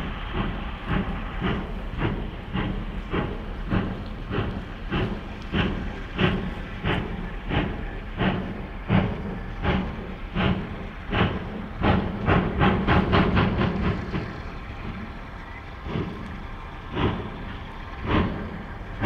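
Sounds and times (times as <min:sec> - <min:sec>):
steam locomotive exhaust beats: 0:00.0 - 0:19.0.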